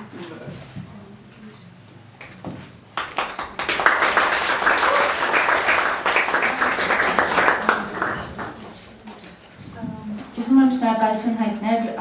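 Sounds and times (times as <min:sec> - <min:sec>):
audience applauding: 0:03.0 - 0:08.8.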